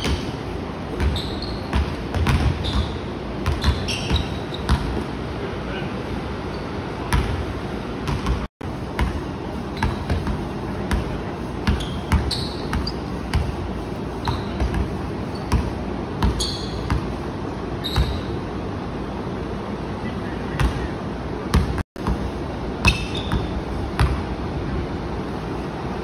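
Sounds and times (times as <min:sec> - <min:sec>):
sneaker squeaks: 0:00.0 - 0:05.1, 0:06.4 - 0:07.3, 0:09.6 - 0:18.4, 0:22.8 - 0:24.1
basketball bouncing on wood floor: 0:01.0 - 0:05.0, 0:08.0 - 0:09.2, 0:09.8 - 0:13.6, 0:14.2 - 0:17.2, 0:21.5 - 0:22.2.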